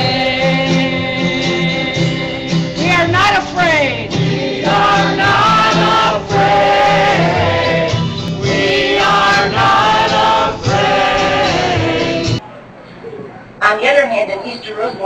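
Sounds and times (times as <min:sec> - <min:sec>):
group of voices singing: 0:00.0 - 0:03.2, 0:03.9 - 0:12.4.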